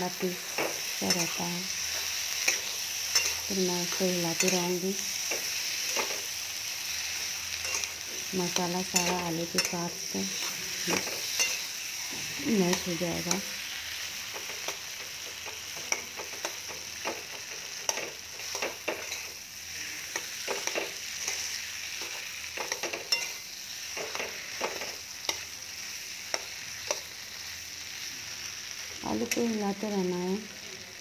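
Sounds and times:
frying sizzle: 0.0s - 31.0s
metal spatula scraping a pan: 7.6s - 13.5s.

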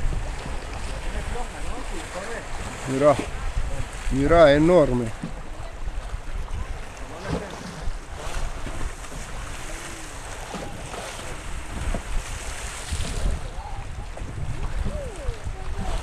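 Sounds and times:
water slapping against seawall: 0.0s - 16.0s
wind buffeting microphone: 0.0s - 16.0s
faint voices: 4.7s - 12.1s, 13.2s - 16.0s.

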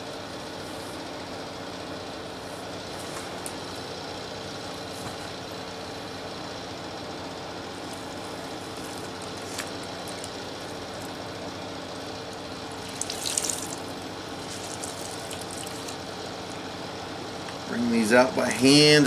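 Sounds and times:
steady background hum: 0.0s - 19.0s
water dripping into plastic tub: 12.8s - 13.9s.

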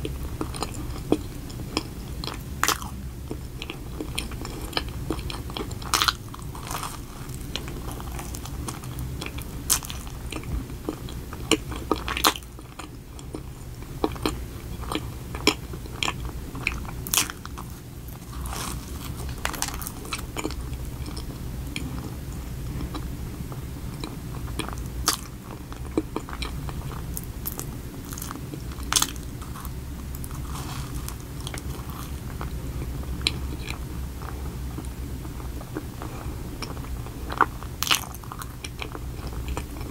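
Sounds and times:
person biting and chewing: 0.4s - 3.0s, 3.6s - 13.4s, 14.0s - 21.3s, 25.9s - 32.5s.

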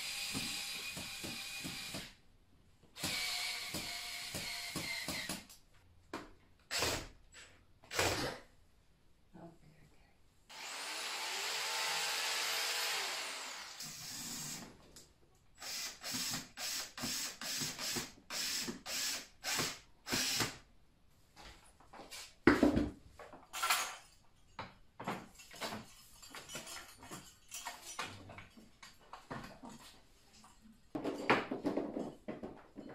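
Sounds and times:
cordless drill running: 0.0s - 2.1s, 3.0s - 5.3s, 10.5s - 14.6s, 15.6s - 20.5s.

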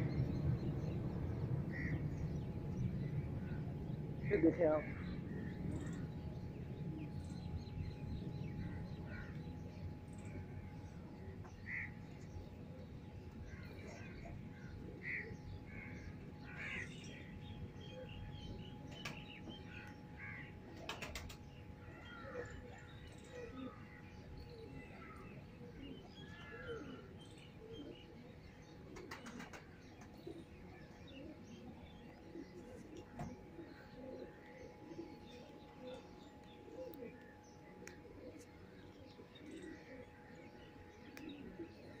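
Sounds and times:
low steady rumble: 0.0s - 18.8s
birds chirping: 0.0s - 42.0s
faint hum: 0.0s - 42.0s.

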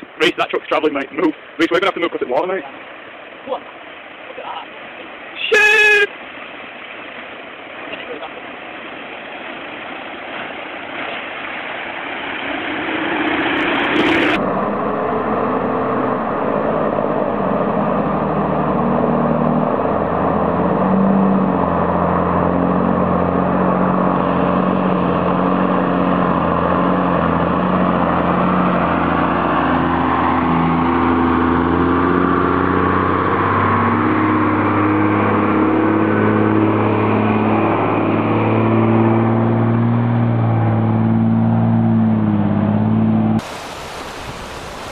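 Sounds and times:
water rushing: 0.0s - 44.9s
diesel truck engine running: 14.4s - 44.0s.

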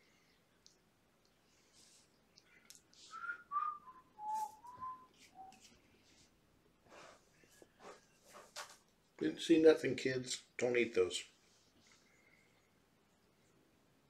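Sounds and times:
soft rustling: 1.2s - 9.3s, 11.0s - 13.6s
person whistling a tune: 3.1s - 5.7s.

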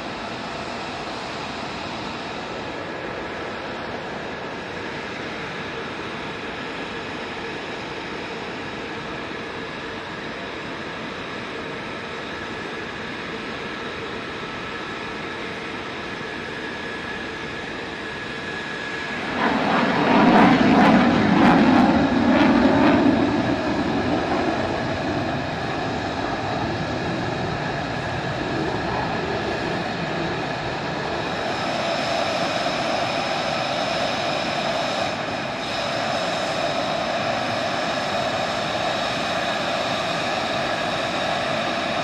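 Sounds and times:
turbine whine: 0.0s - 42.0s
jet engine rushing: 16.6s - 42.0s.

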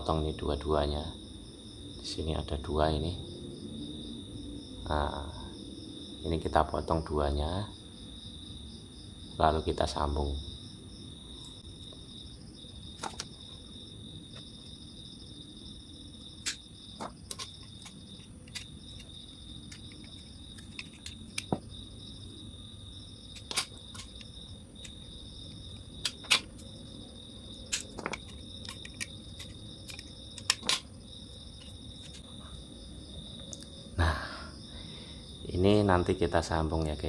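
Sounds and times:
crickets trilling: 0.0s - 37.0s
clicks and taps of handled metal parts: 16.4s - 19.1s, 19.7s - 21.6s, 23.4s - 24.2s, 26.0s - 26.6s, 27.7s - 30.9s.

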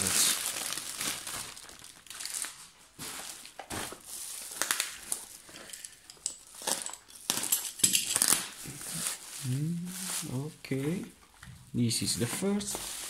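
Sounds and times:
plastic tearing: 0.0s - 5.7s, 6.5s - 9.4s
plastic bubble wrap crinkling: 0.0s - 11.0s, 12.1s - 13.0s.

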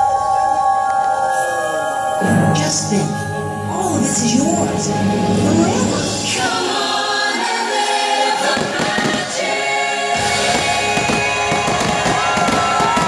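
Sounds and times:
choir singing held notes: 4.9s - 13.0s
fireworks popping and banging: 8.5s - 9.5s, 10.2s - 13.0s.

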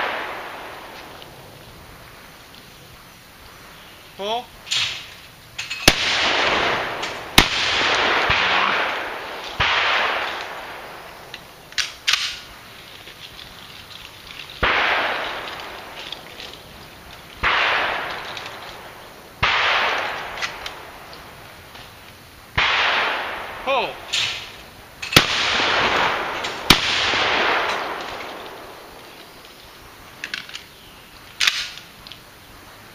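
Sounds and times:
shotgun shots with rolling echo: 0.0s - 1.0s, 4.7s - 11.1s, 14.6s - 16.0s, 17.4s - 21.1s, 22.5s - 28.8s.

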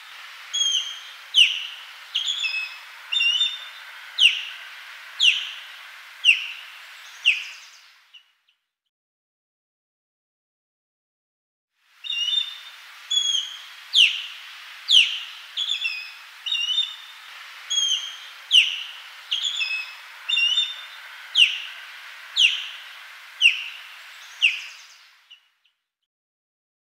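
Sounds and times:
bird whistled calls: 0.5s - 4.6s, 5.2s - 7.8s, 12.0s - 25.4s
bird paired chirps: 0.6s - 4.6s, 5.2s - 7.8s, 12.1s - 25.4s.

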